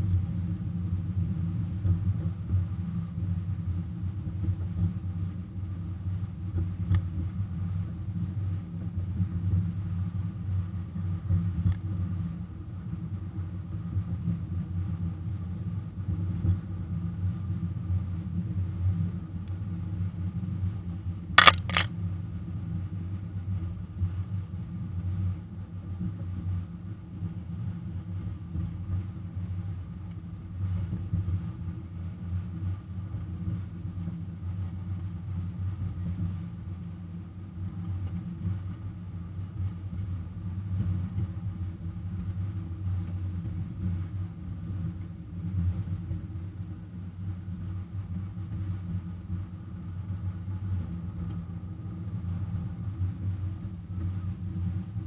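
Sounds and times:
sharp double click: 21.4 - 21.9.

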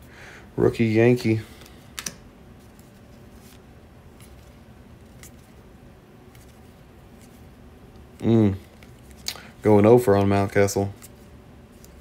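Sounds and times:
cards being flipped by hand: 1.6 - 5.6, 6.3 - 9.5, 10.9 - 12.0.

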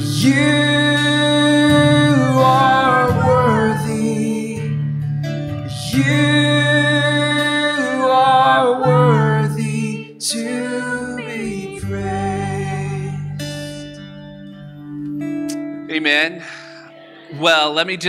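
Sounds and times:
woman and man singing: 0.0 - 4.8, 5.7 - 13.6
bass guitar: 0.0 - 9.6, 11.2 - 16.0
strummed acoustic guitar: 0.0 - 18.0.

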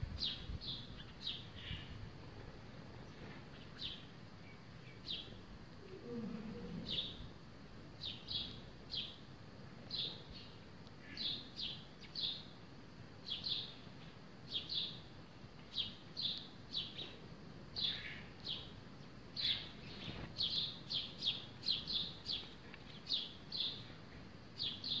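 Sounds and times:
sparrows chirping: 0.2 - 2.0, 3.0 - 5.4, 6.8 - 7.2, 8.0 - 9.2, 9.8 - 12.6, 13.2 - 17.2, 17.8 - 24.0, 24.6 - 25.0.

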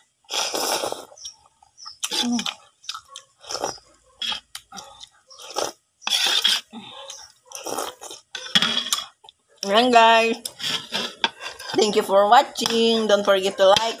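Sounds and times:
person slurping noodles: 0.3 - 1.2, 5.4 - 6.8, 7.6 - 8.2
chewing: 0.3 - 9.7.

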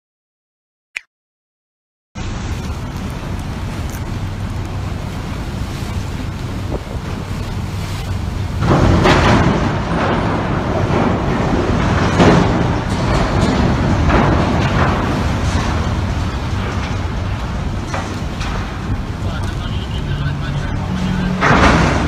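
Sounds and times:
wind buffeting microphone: 2.4 - 22.0.

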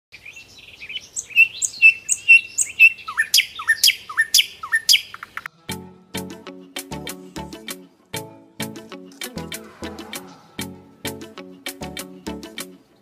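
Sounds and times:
bird chirping: 0.1 - 5.5
bird calls sweeping upward: 0.2 - 5.5.

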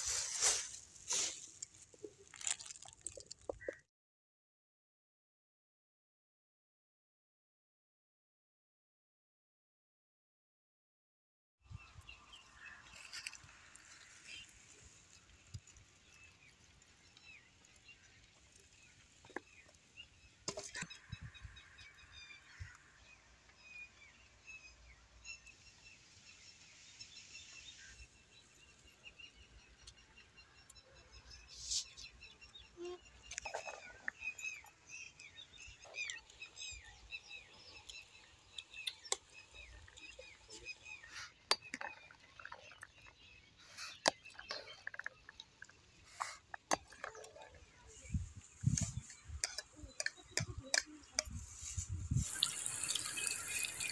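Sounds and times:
small birds chirping: 11.7 - 53.9.

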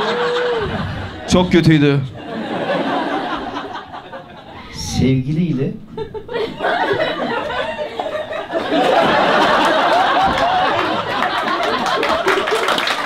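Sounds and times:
audience laughing: 0.0 - 4.8, 5.8 - 13.0
people clapping: 8.6 - 13.0.

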